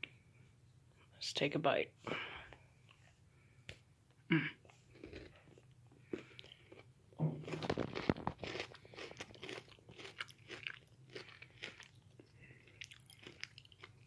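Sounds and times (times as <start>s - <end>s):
crunchy chewing: 4.6s - 14.0s.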